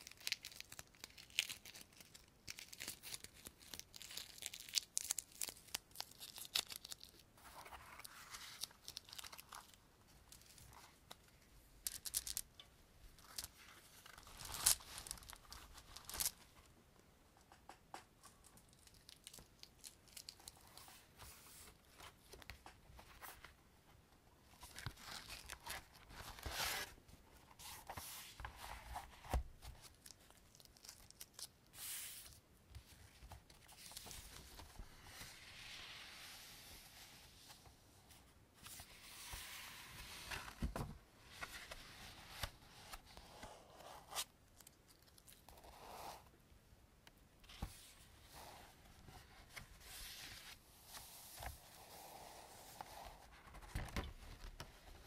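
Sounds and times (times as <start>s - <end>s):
objects crinkling and scratching on desk: 11.8s - 12.6s.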